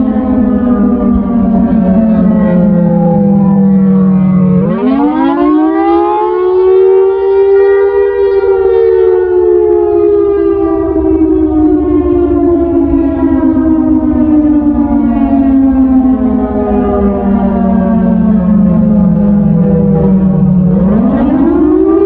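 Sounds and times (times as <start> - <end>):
low rumble: 0.0 - 4.7, 9.6 - 21.7
electronic siren wailing: 0.0 - 22.0.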